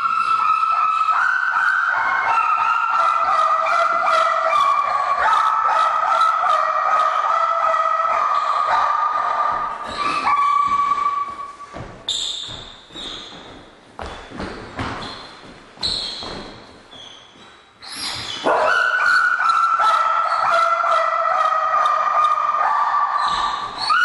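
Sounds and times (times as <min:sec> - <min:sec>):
dog whining: 0:17.9 - 0:24.0.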